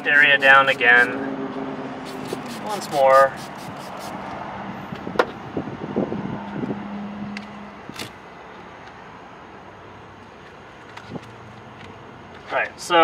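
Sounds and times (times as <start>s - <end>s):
spray bottle spritz: 2.0s - 4.2s.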